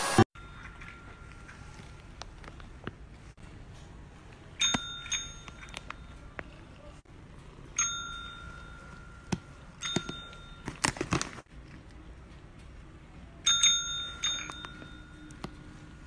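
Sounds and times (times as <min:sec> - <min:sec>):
call bell ringing: 0:04.6 - 0:06.3, 0:07.8 - 0:10.9, 0:13.5 - 0:16.0.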